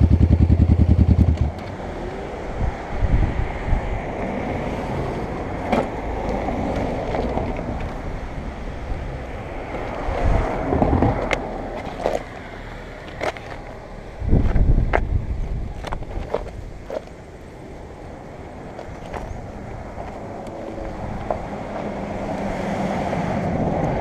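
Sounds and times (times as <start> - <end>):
microphone handling rumble: 13.2 - 17.0.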